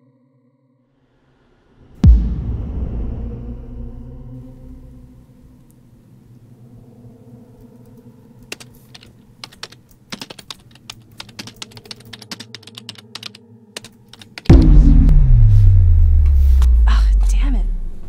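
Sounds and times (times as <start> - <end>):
keyboard key clicks: 8.5 - 14.5
low steady hum: 14.5 - 18.0.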